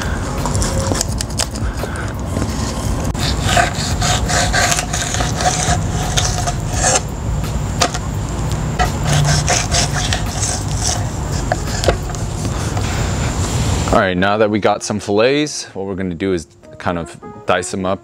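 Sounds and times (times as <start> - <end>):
knife scraping on cutting board: 2.4 - 7.1, 8.8 - 12.8.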